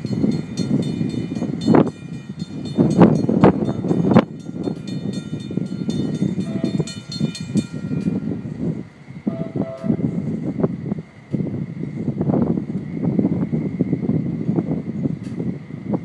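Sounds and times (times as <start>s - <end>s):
grade-crossing bells ringing: 0.0s - 10.3s.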